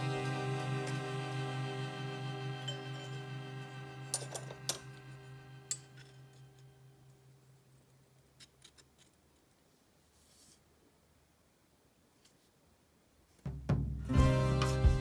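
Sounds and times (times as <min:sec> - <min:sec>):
sustained background music tone: 0:00.0 - 0:07.1, 0:13.7 - 0:15.0.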